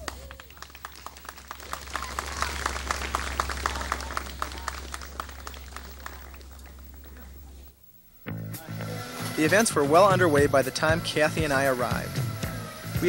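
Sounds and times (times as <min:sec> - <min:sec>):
audience applauding: 0:00.0 - 0:07.6
steady low hum: 0:00.0 - 0:13.0.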